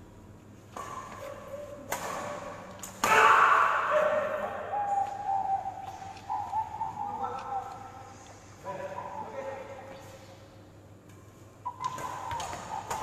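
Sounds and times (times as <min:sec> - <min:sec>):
rackets striking shuttlecock: 0:00.7 - 0:03.4, 0:11.1 - 0:13.0.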